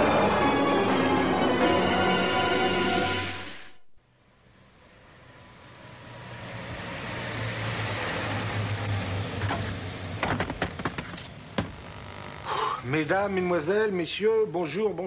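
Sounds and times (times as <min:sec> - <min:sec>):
van engine passing: 0:04.3 - 0:13.8.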